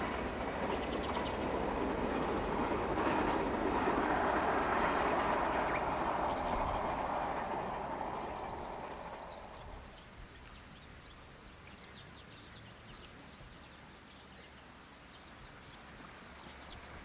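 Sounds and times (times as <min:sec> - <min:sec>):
passing train rumble: 0:00.0 - 0:11.2.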